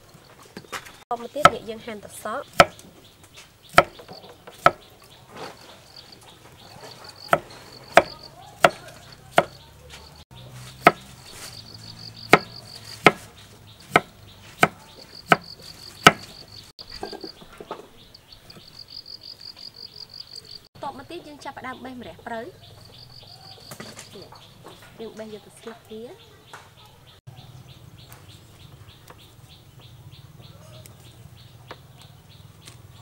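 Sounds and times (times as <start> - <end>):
insects trilling: 0.0 - 10.2, 10.8 - 13.1, 13.9 - 24.9
knife chopping on wooden board: 2.5 - 2.9, 3.7 - 4.9, 6.8 - 10.0, 10.7 - 11.1, 12.2 - 16.4.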